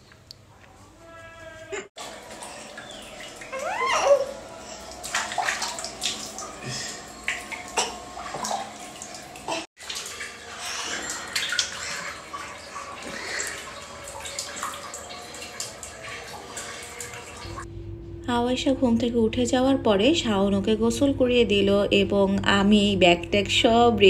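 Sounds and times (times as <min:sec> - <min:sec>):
water splashing and pouring: 0:02.0 - 0:17.7.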